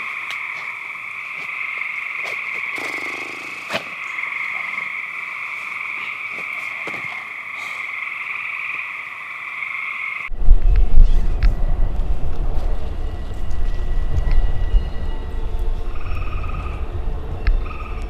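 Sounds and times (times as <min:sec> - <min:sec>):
frogs calling: 0:00.0 - 0:10.3, 0:14.5 - 0:18.0.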